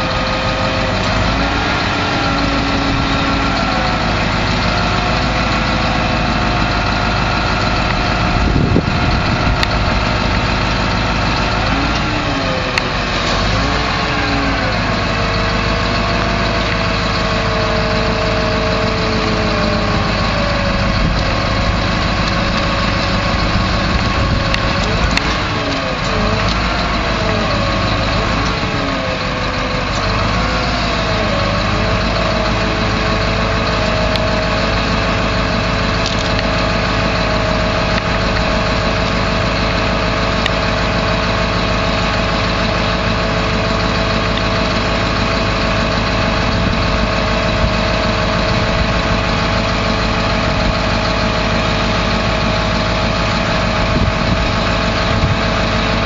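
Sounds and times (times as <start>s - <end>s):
diesel truck engine idling: 0.0s - 56.0s.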